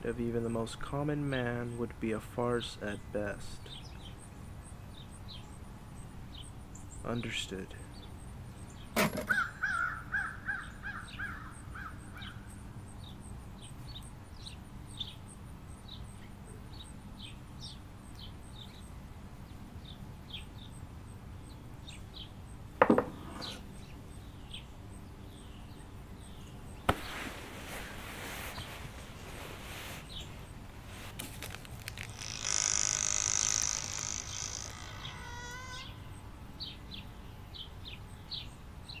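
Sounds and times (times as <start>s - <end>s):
rustle: 0.0s - 39.0s
birds chirping: 1.3s - 39.0s
sharp knocks: 22.8s - 23.2s
rapid chattering bird call: 31.4s - 36.2s.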